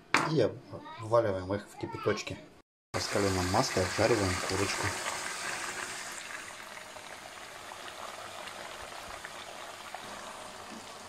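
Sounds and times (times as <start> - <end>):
chicken sizzling in hot oil: 3.0 - 11.0.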